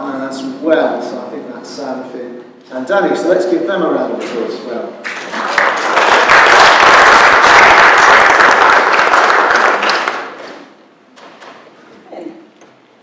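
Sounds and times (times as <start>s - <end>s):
congregation applauding: 5.0s - 10.7s.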